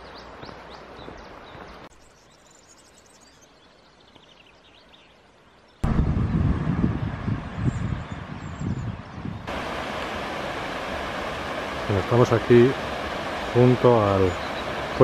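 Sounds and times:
small birds chirping: 0.0s - 5.9s, 7.2s - 9.5s, 13.4s - 15.0s
steady outdoor hiss: 0.0s - 15.0s
wind buffeting microphone: 5.8s - 15.0s.

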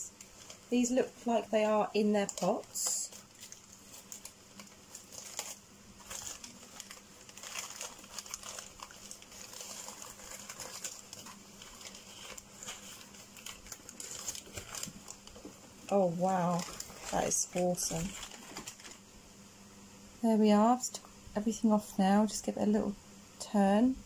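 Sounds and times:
packing paper crinkling: 0.0s - 19.0s.

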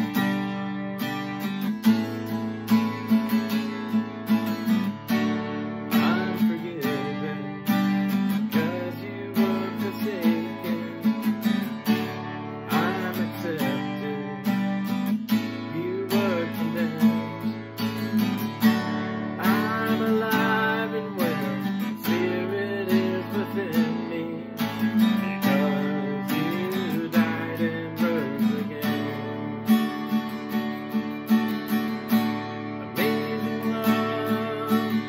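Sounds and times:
acoustic guitar strumming: 0.0s - 35.0s
man singing: 5.8s - 30.0s, 32.8s - 35.0s.

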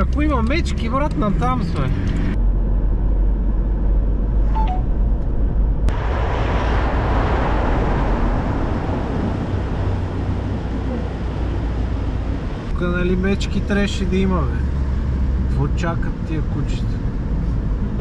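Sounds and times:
engine and road rumble: 0.0s - 18.0s
rush of wind and tyre noise: 0.0s - 18.0s.

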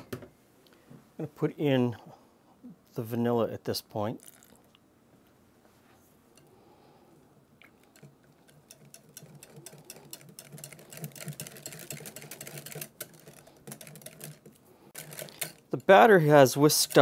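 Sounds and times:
whisk clicking against glass bowl: 8.0s - 17.0s.

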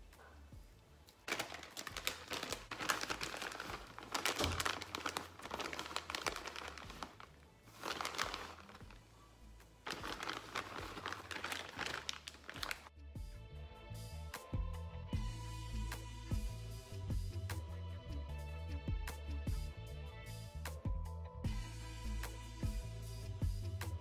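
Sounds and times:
plastic bag crinkling: 1.2s - 9.2s, 9.8s - 12.9s.

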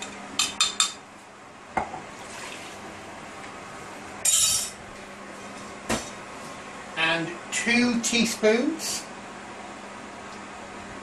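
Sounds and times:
liquid pouring: 2.1s - 2.9s.

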